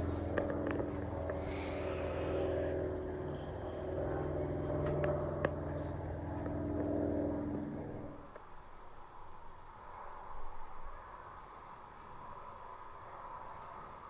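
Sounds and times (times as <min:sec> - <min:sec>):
vehicle engine running: 0:00.0 - 0:08.4.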